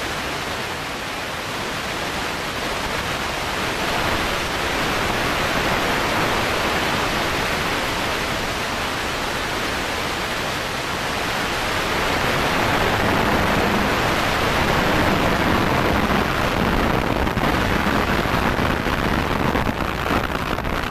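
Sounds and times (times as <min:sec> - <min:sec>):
car engine and road noise: 0:02.8 - 0:20.9.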